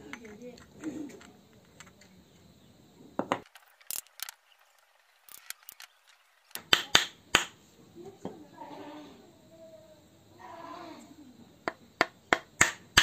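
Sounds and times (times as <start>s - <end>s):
loud knocks on wooden table: 3.2s - 3.5s.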